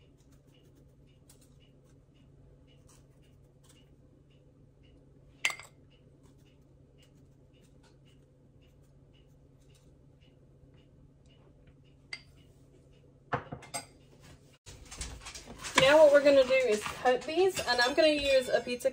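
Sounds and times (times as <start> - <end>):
faint spoon ticks: 0.0 - 13.2
spoon clinking on glass bowl: 5.4 - 5.8.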